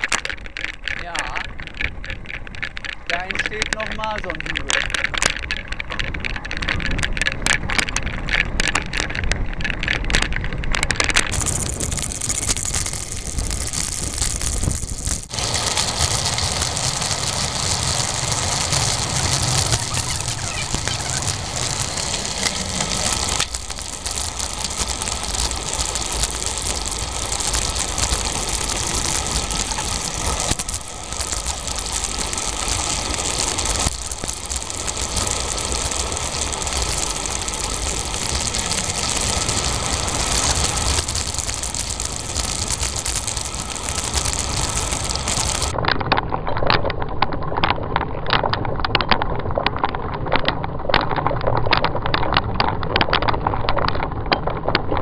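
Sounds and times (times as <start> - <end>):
bicycle tyres rolling on pavement: 0.0 - 55.0
wind on microphone: 4.5 - 46.0
sharp clicks: 11.1 - 45.8.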